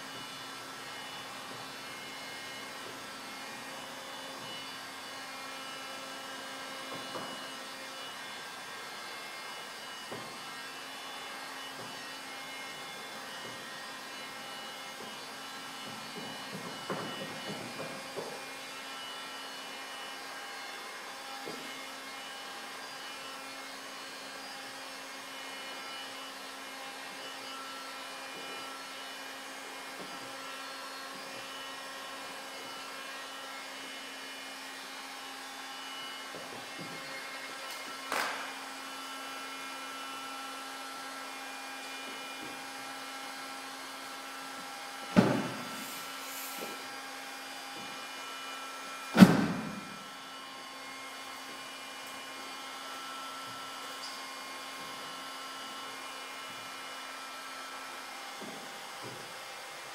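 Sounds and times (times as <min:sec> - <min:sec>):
heat gun humming: 0:45.0 - 0:54.2
loud thump: 0:49.2 - 0:49.9.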